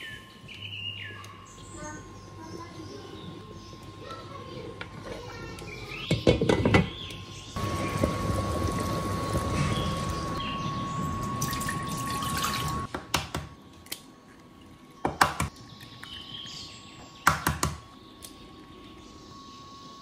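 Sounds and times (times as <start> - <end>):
broth bubbling in a pot: 7.6 - 12.9.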